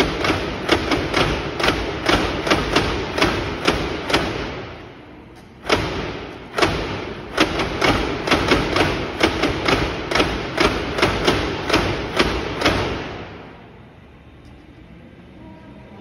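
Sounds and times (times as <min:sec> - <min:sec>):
wooden clock clacking: 0:00.0 - 0:04.4.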